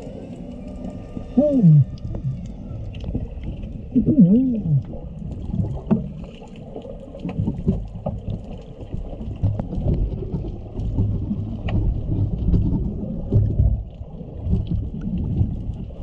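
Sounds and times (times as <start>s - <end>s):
whale song moans: 0.0s - 5.2s
low rush of water: 0.0s - 16.0s.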